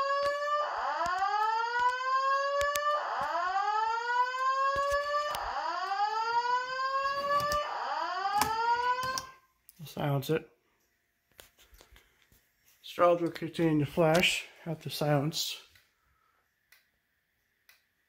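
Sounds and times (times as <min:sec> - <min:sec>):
fire alarm whoop tone: 0:00.0 - 0:09.5.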